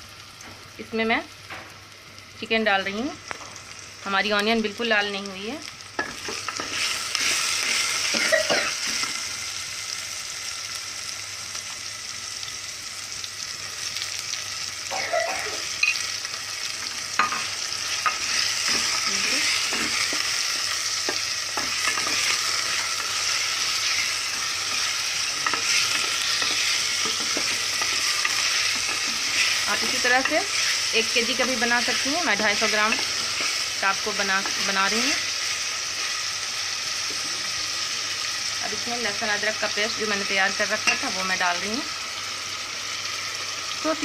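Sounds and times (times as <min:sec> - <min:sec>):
chicken sizzling in oil: 0:00.0 - 0:44.0
metal utensil scraping pot: 0:17.2 - 0:33.6.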